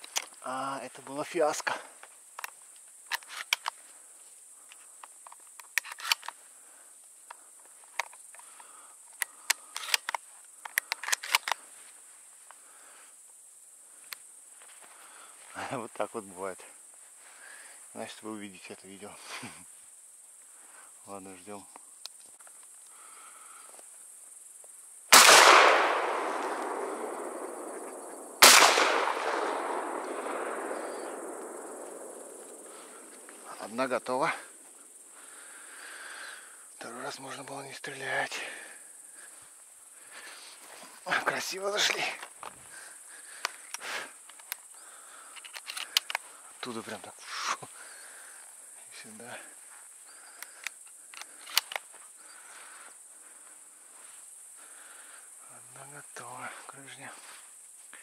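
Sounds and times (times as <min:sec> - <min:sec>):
grasshoppers chirring: 0:00.0 - 0:58.0
sharp clicks and rustles: 0:02.4 - 0:03.8, 0:04.7 - 0:06.4, 0:09.1 - 0:11.7, 0:43.3 - 0:44.7, 0:45.3 - 0:46.3, 0:50.3 - 0:51.9
echo off forest: 0:24.6 - 0:57.5
shotgun shots: 0:25.1 - 0:32.6.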